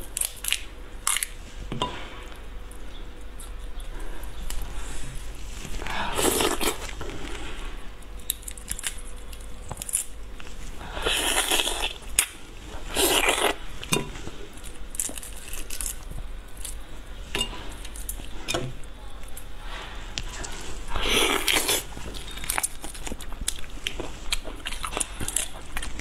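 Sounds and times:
prawn shells cracking: 0.0s - 1.4s, 8.2s - 10.2s, 14.6s - 16.8s.

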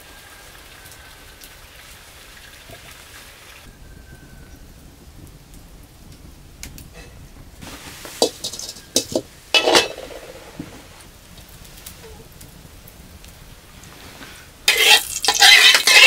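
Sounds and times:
dishes and utensils clinking: 8.2s - 10.6s, 14.7s - 16.0s
dishes clattering: 8.2s - 10.6s, 14.7s - 16.0s.

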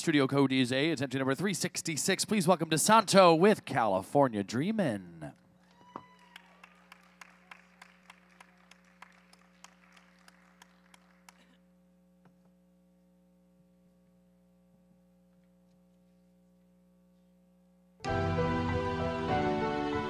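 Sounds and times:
faint steady hum: 0.0s - 18.1s
audience applause: 5.7s - 11.6s.

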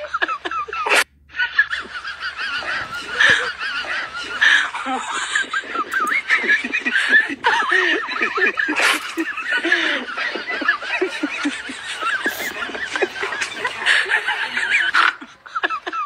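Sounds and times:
high voices giggling: 0.0s - 16.0s.

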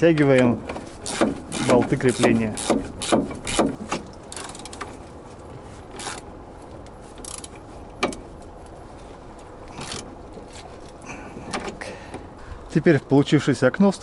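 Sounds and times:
wrench clicking on metal parts: 4.3s - 4.9s, 6.0s - 6.2s, 7.2s - 8.2s.

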